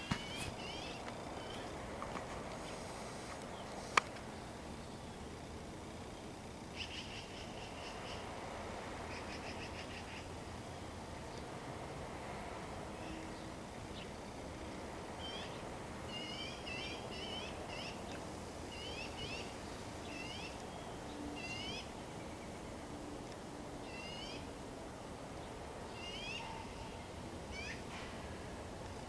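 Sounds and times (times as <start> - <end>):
songbird chirping: 0.0 - 2.2, 3.3 - 8.3, 12.9 - 27.9
outdoor hiss: 0.0 - 29.0.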